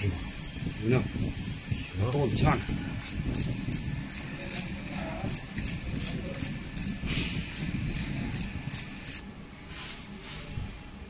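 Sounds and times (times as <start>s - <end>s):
ratchet spanner clicking: 2.0s - 9.3s.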